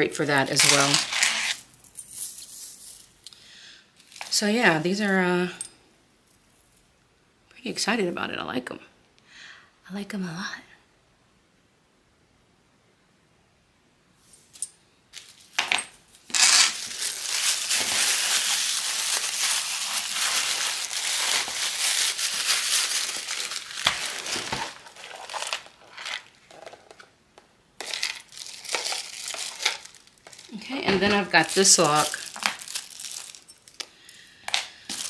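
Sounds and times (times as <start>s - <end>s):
plastic bags crinkling: 0.4s - 1.6s, 15.2s - 27.1s, 27.8s - 35.0s.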